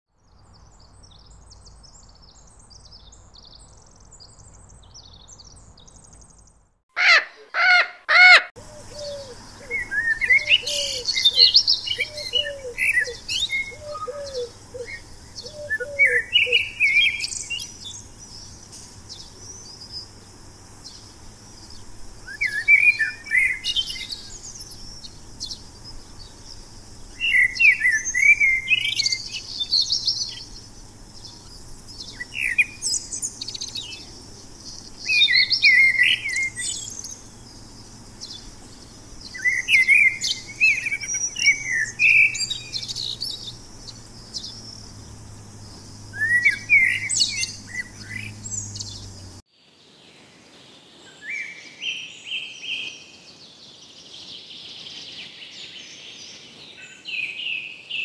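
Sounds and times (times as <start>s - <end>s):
birds chirping and singing: 0.5s - 49.4s
loud pitched bird calls: 4.3s - 49.4s.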